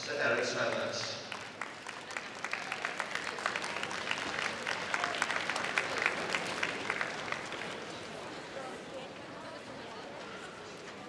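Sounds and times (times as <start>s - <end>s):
large audience applauding: 0.6s - 8.7s.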